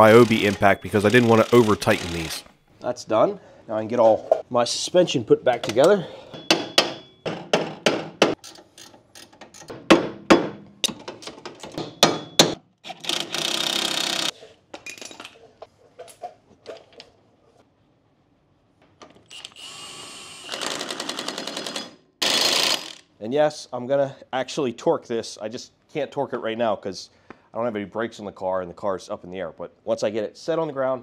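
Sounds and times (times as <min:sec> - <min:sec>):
impact wrench hammering: 0:06.4 - 0:08.5, 0:09.6 - 0:11.0, 0:11.6 - 0:12.6.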